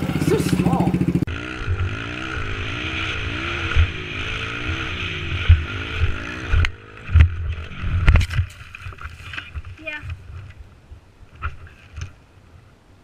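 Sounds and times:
dirt bike engine revving: 0.0 - 8.4.

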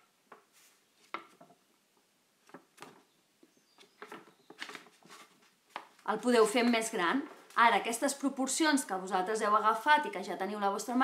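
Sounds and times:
stiff paper rustling and tapping: 0.3 - 1.6, 2.4 - 3.1, 3.8 - 7.5.

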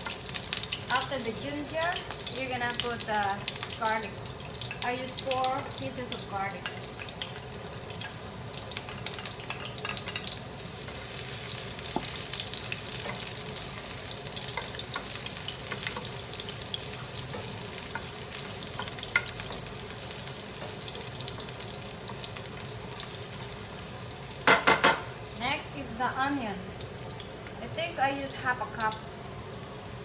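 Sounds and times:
garlic sizzling in hot oil: 0.0 - 30.0.

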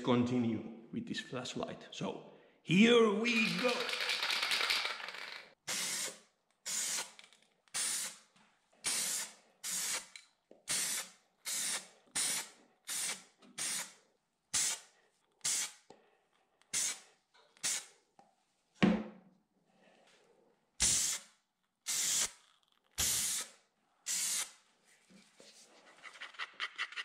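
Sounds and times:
spray paint hissing: 5.6 - 15.9, 16.7 - 17.0, 17.6 - 17.9, 20.8 - 22.4, 23.0 - 24.6.

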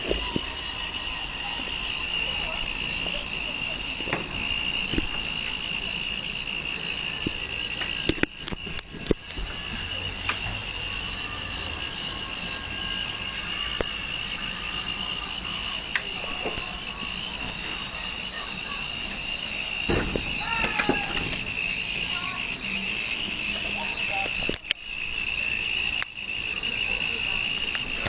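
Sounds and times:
insects chirring: 0.0 - 28.0
sharp clicks: 7.2 - 9.4, 26.0 - 26.2.

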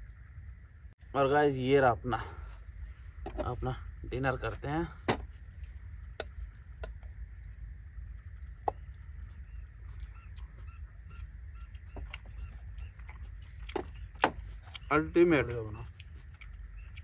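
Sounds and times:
steady low hum: 0.0 - 17.0
faint animal calls: 5.4 - 17.0.

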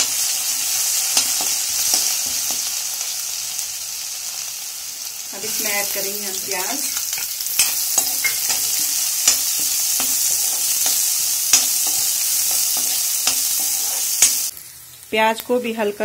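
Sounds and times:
onions sizzling in hot oil: 0.0 - 16.0
steel spatula clacking and scraping: 6.8 - 14.5.

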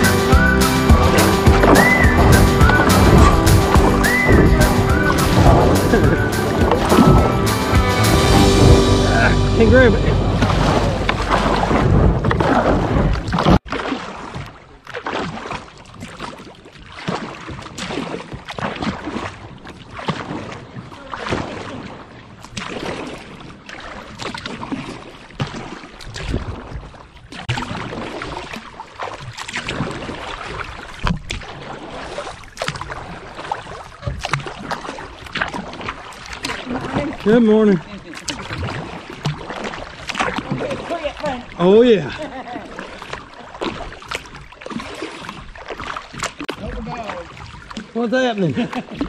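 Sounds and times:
music: 0.0 - 11.8
paddle strokes in river water: 0.0 - 49.0.

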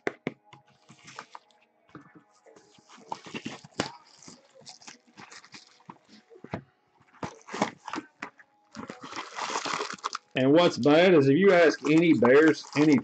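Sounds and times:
plastic wrap crinkling: 2.6 - 6.5, 7.1 - 13.0
cardboard scraping and tapping: 2.8 - 9.0.

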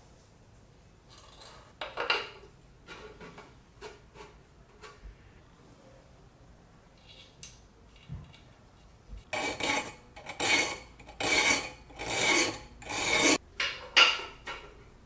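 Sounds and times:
metal ring rasping on file: 9.3 - 13.4.

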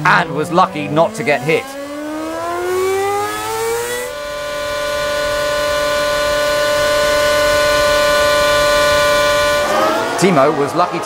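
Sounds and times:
racing car engine accelerating: 0.0 - 11.0
racing car engine steady high pitch: 0.0 - 11.0.

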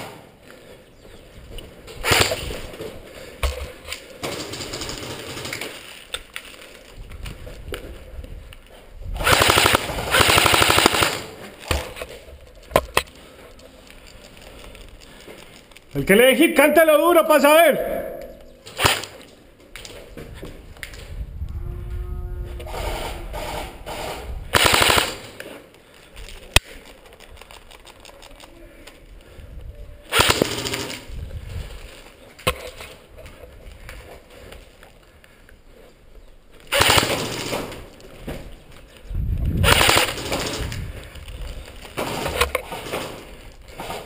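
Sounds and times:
airsoft guns firing bursts: 4.2 - 5.8, 9.2 - 11.4, 23.4 - 25.4, 30.1 - 31.1, 36.7 - 37.8, 39.6 - 40.7.

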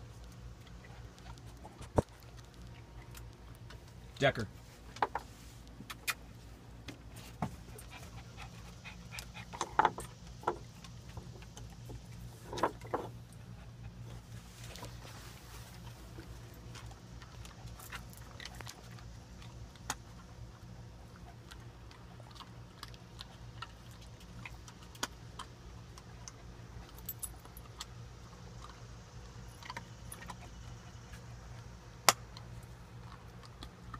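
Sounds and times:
steady low hum: 0.0 - 33.9.

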